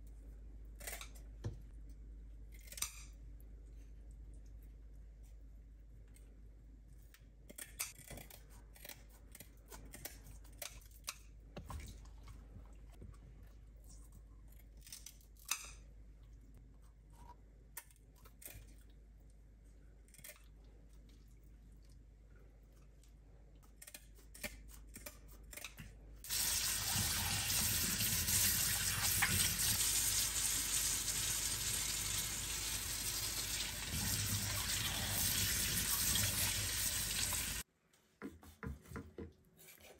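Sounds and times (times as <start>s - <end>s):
water running into metal sink: 26.3s - 37.6s.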